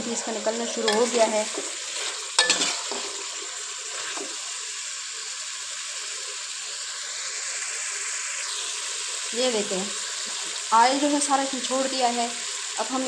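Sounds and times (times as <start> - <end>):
chicken sizzling in oil: 0.0 - 13.0
spatula scraping pan: 0.1 - 4.4.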